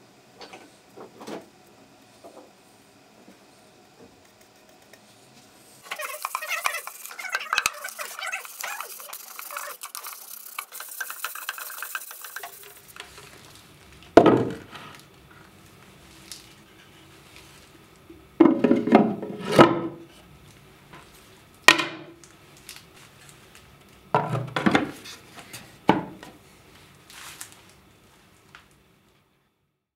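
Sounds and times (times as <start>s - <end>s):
sandpaper rubbing on wood: 5.8s - 13.0s.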